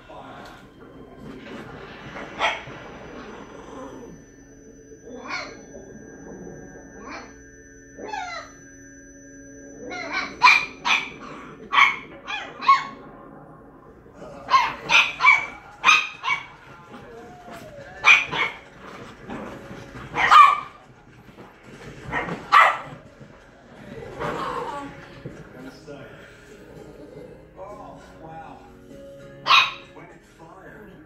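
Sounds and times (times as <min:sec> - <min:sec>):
dog barking: 0:02.3 - 0:02.8, 0:09.9 - 0:13.0, 0:14.4 - 0:18.7, 0:20.1 - 0:20.9, 0:22.0 - 0:23.0, 0:29.4 - 0:30.0.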